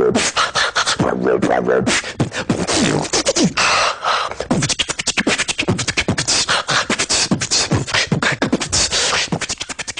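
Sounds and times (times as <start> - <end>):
beatboxing: 0.0 - 9.9.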